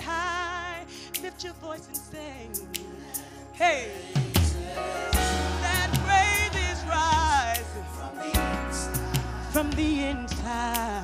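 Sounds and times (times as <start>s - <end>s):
person singing: 3.6s - 11.0s
percussion hits: 4.4s - 8.6s.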